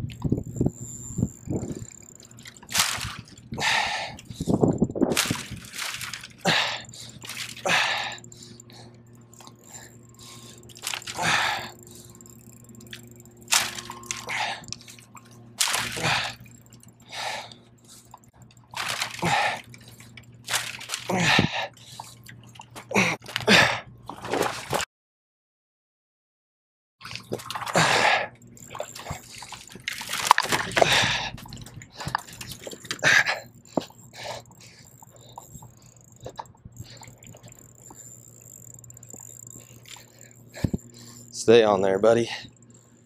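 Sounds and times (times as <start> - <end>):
man breathing hard: 3.5 - 4.8, 6.4 - 9.0, 9.6 - 12.2, 15.9 - 18.2, 19.2 - 20.1, 21.1 - 22.2, 30.7 - 36.0.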